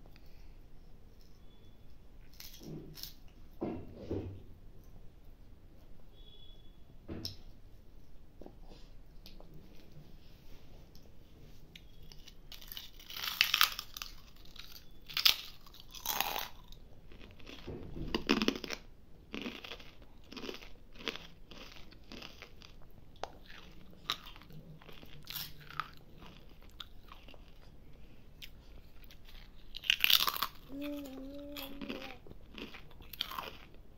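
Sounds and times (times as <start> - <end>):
crunchy snack chewing: 11.9 - 27.7, 28.4 - 33.8.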